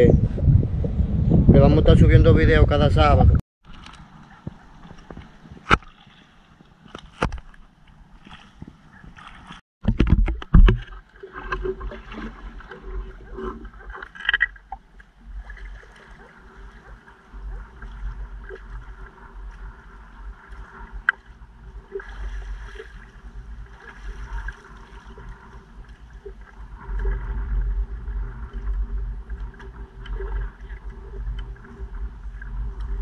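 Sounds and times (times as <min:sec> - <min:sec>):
wind rumble on microphone: 0:00.0 - 0:05.8, 0:14.6 - 0:33.0
water sloshing from wading: 0:03.6 - 0:33.0.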